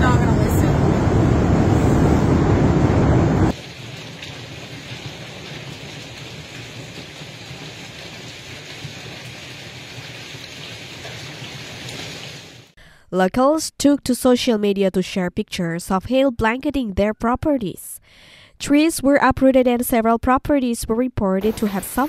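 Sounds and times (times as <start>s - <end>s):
hail and rain on lawn: 3.5s - 12.7s
hail drumming on roof: 3.6s - 12.7s.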